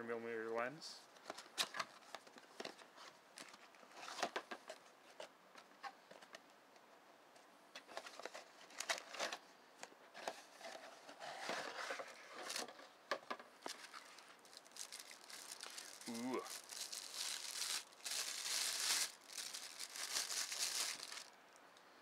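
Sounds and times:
cardboard packaging rustling: 10.2s - 13.0s, 13.6s - 21.3s.

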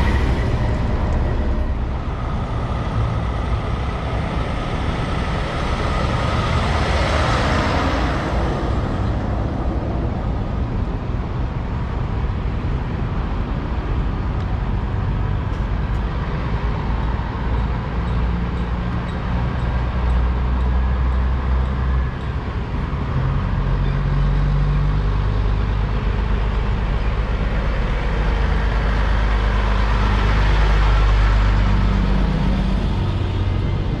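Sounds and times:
diesel truck driving past: 0.0s - 11.9s, 19.3s - 34.0s.

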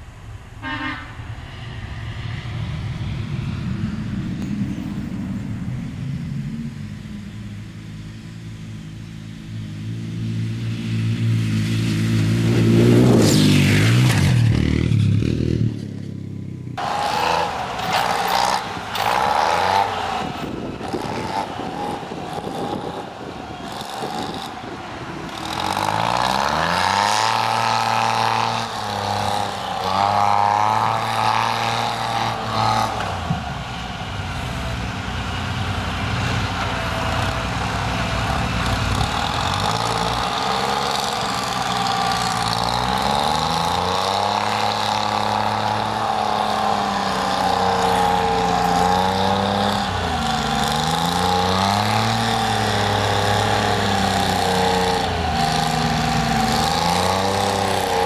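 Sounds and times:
heavy machinery engine revving: 16.7s - 58.0s
small engine running unevenly: 16.8s - 58.0s.

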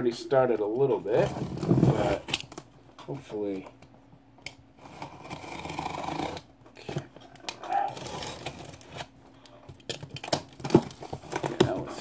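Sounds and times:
cardboard scraping and handling: 0.9s - 2.3s
box cutter slitting tape: 5.0s - 6.5s.

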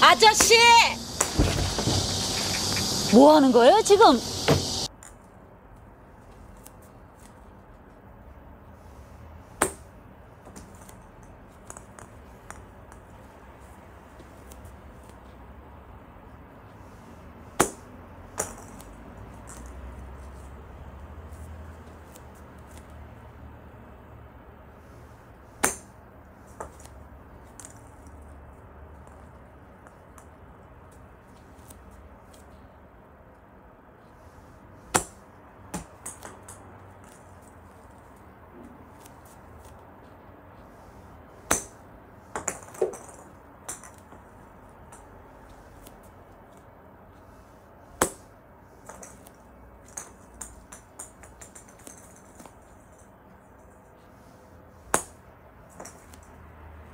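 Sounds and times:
plastic balls landing and bouncing: 34.9s - 37.3s, 41.4s - 44.3s, 48.0s - 53.0s.

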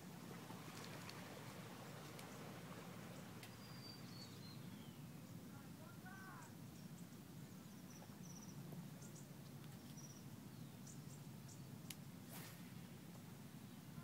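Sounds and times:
steady low hum: 0.0s - 14.0s
high bird chirps: 3.5s - 5.0s
fishing rod whoosh: 12.2s - 13.0s.

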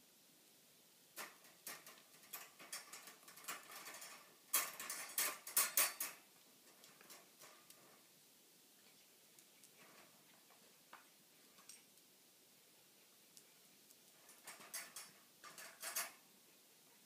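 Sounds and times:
metal crate door rattling: 1.2s - 6.2s.

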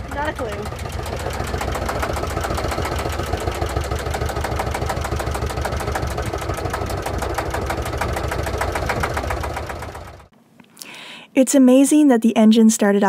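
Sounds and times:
diesel engine idling: 0.0s - 10.3s.

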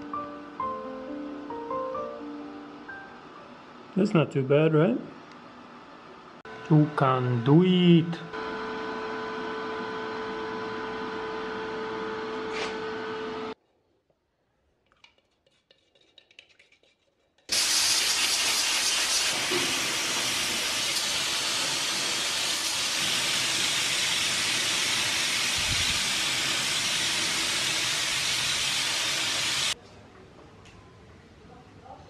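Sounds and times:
spray gun hissing: 17.5s - 29.8s.

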